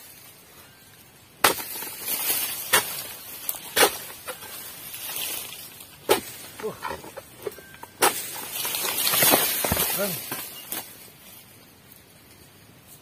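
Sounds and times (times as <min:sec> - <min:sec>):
chisel blade striking palm stalks: 0:01.4 - 0:06.7, 0:07.4 - 0:10.9
palm fronds rustling as they fall: 0:01.4 - 0:11.5.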